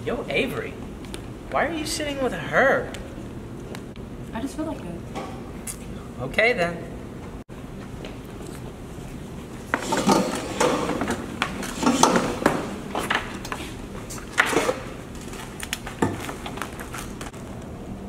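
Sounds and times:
objects clattering on a table: 9.8 - 13.5, 14.3 - 14.9, 15.9 - 17.3.

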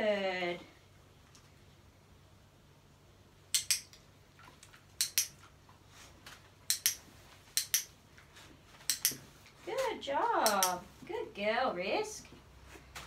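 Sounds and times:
dog-training clicker clicks: 7.6 - 7.9, 8.9 - 9.2, 10.4 - 10.8.

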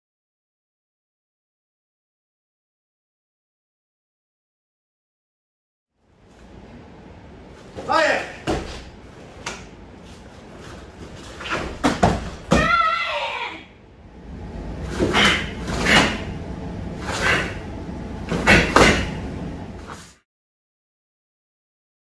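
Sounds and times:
uniform swishing and snapping: 7.6 - 12.5, 14.8 - 16.3, 17.0 - 17.6
person shouting: 7.9 - 8.4, 12.5 - 13.8
body thudding on foam mats: 8.4 - 9.5, 10.6 - 12.8.

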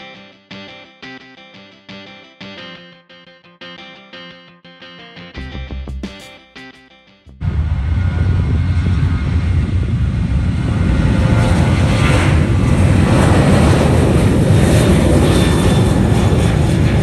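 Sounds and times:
jet engines roaring: 7.4 - 17.0.

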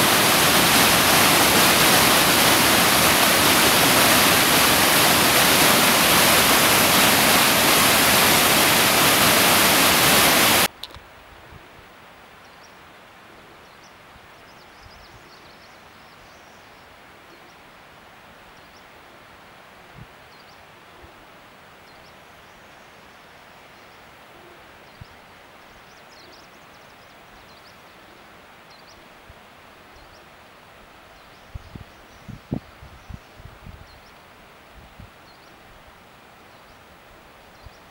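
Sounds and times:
stream rushing over rocks: 0.0 - 10.7.

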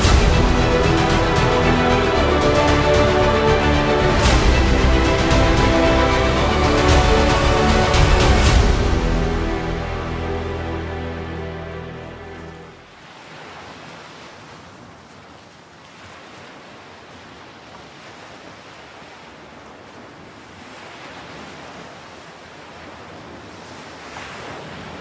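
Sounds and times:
ocean waves breaking: 0.0 - 25.0.

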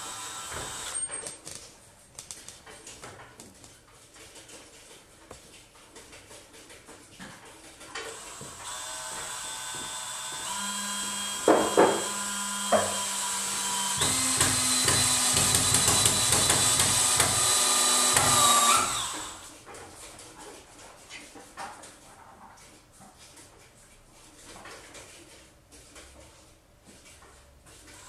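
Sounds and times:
cordless drill whining: 0.0 - 1.3, 8.0 - 19.5
sharp knocks: 11.4 - 13.0.

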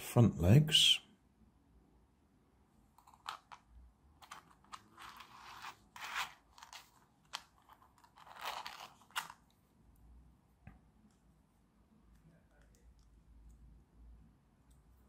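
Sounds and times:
plastic scraping on plastic: 4.2 - 9.5.

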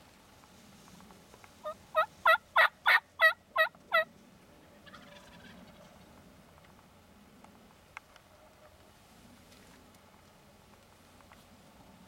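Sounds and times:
turkey yelping: 1.6 - 4.1, 4.8 - 6.0.

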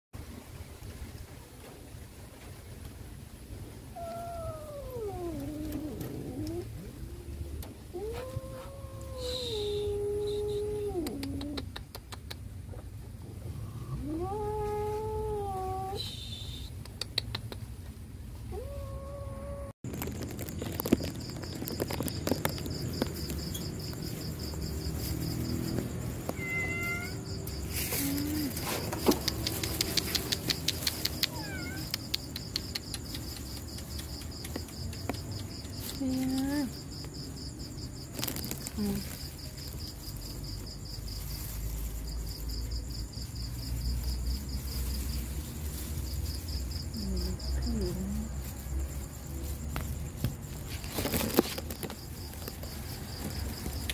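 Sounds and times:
cat meowing: 18.5 - 19.8, 26.2 - 27.3, 31.2 - 32.0.

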